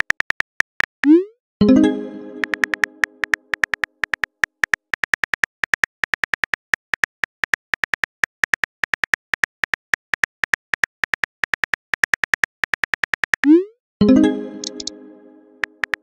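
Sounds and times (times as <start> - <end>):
phone keyboard taps: 2.4 - 13.5.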